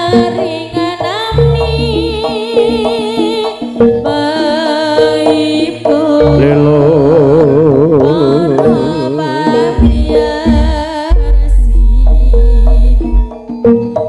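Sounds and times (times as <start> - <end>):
wavering melody with vibrato: 0.0 - 14.0
low drum beats: 6.2 - 13.8.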